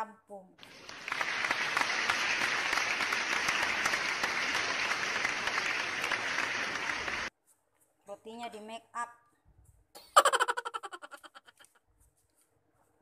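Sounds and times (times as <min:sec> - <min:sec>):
crowd clapping: 0:00.6 - 0:07.3.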